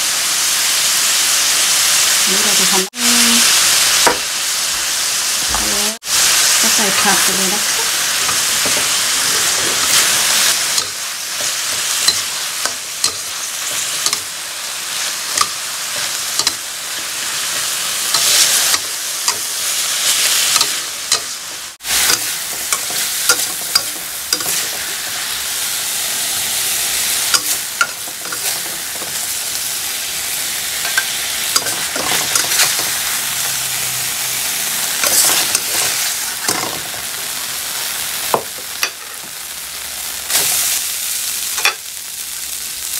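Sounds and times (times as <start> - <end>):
food sizzling in a wok: 0.0 - 42.9
metal spatula scraping a pan: 6.2 - 25.2, 27.3 - 29.6, 30.8 - 33.6, 35.0 - 36.8.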